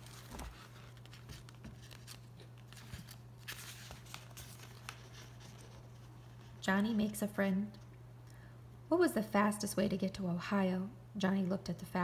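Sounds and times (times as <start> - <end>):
book pages turning: 0.0 - 6.6.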